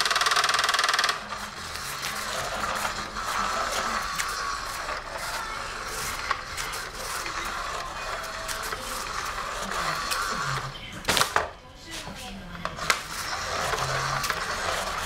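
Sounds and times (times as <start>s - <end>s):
small motor whirring: 0.0s - 11.0s, 12.8s - 15.0s.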